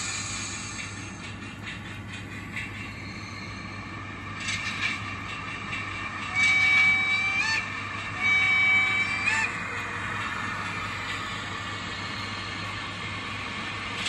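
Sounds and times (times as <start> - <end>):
model train horn: 6.3 - 9.6.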